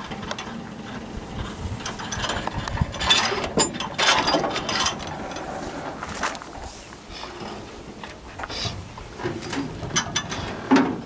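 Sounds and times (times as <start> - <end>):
winch metal clicking and ratcheting: 0.0 - 5.6, 9.4 - 11.0.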